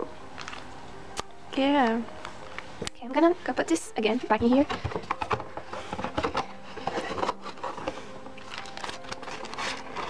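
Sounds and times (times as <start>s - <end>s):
faint music: 0.0s - 10.0s
plastic wrapping crinkling: 0.3s - 0.8s, 4.4s - 10.0s.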